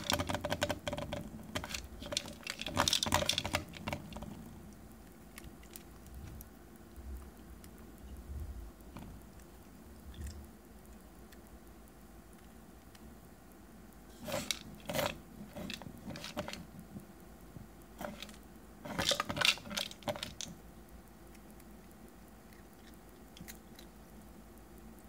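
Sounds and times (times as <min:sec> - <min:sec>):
plastic toy clattering on tile: 0:00.0 - 0:04.3, 0:14.2 - 0:16.6, 0:18.0 - 0:20.5
dry treats rattling: 0:00.0 - 0:04.5, 0:14.1 - 0:16.7, 0:18.0 - 0:20.6.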